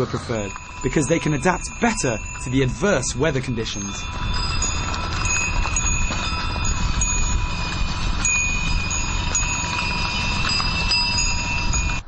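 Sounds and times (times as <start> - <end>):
horse bells ringing: 0.0 - 12.0
low rumble: 0.0 - 12.0.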